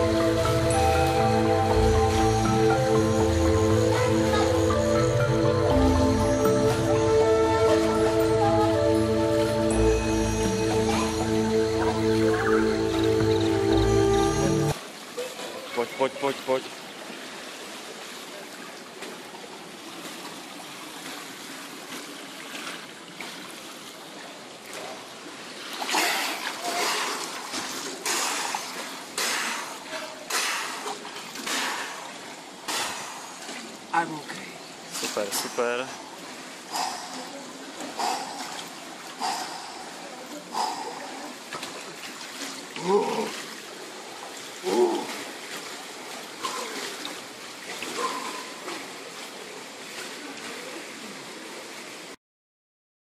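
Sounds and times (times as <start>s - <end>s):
pool water sloshing into gutter: 14.7s - 52.2s.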